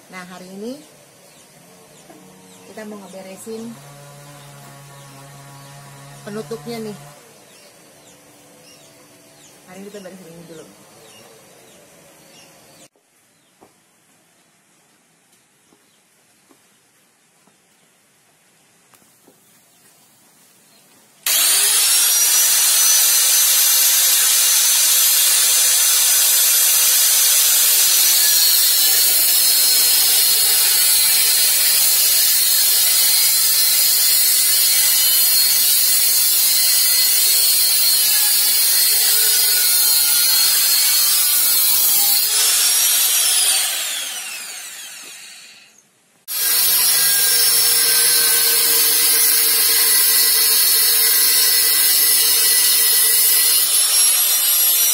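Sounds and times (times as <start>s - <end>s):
angle grinder cutting metal: 2.0s - 11.2s, 21.2s - 54.9s.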